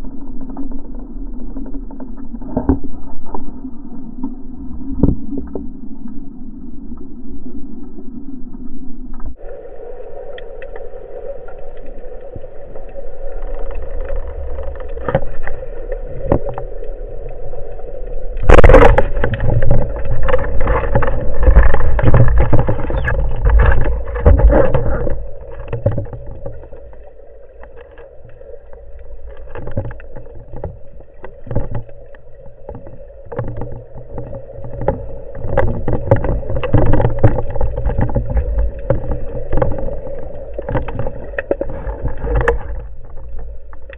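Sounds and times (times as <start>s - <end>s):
underwater hum and water noise: 0.0s - 43.9s
churning water: 9.4s - 43.9s.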